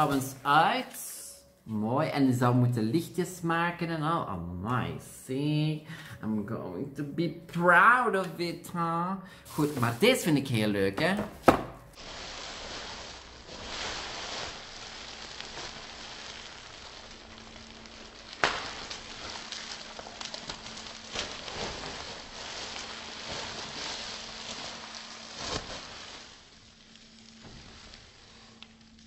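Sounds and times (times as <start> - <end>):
bubble wrap crinkling: 0.0 - 1.5, 8.7 - 29.0.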